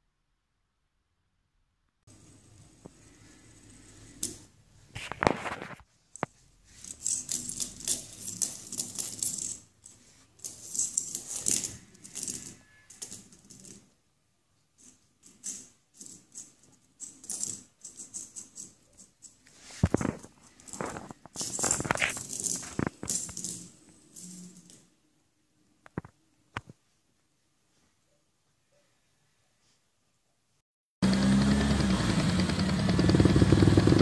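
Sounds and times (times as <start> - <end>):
fidget spinner clattering on tiles: 2.8 - 14.0, 14.8 - 24.9.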